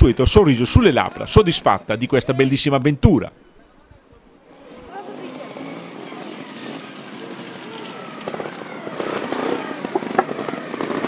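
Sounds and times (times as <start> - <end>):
motorcycle engine revving: 5.6 - 11.0
crackling pops: 6.7 - 11.0.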